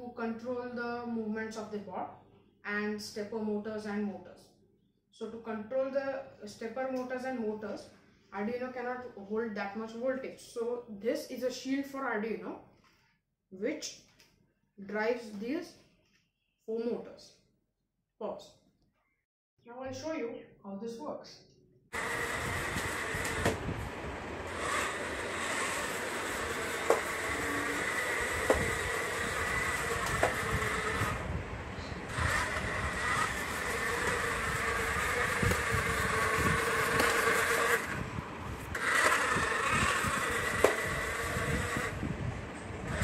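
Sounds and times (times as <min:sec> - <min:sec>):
robot motors whining: 0:22.0 - 0:42.0.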